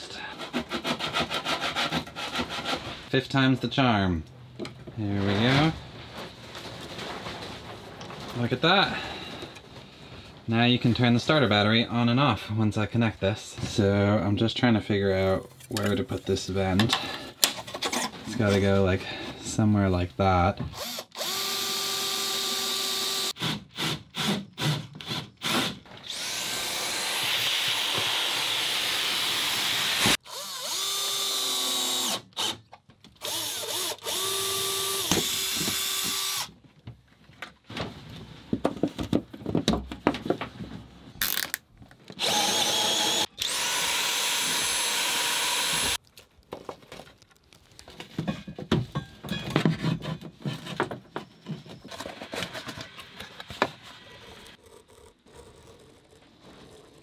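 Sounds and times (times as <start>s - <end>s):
cordless drill cutting wood: 20.8s - 32.6s, 33.2s - 36.5s, 42.2s - 46.0s.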